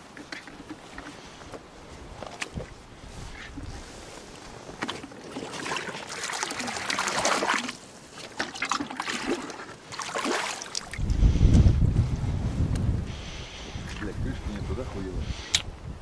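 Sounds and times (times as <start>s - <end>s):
water splashing and trickling: 0.0s - 11.4s
low rumble: 11.0s - 13.2s.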